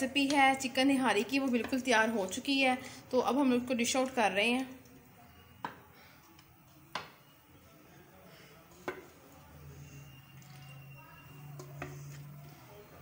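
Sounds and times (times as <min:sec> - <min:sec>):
gravy dripping and slopping: 0:10.0 - 0:12.7.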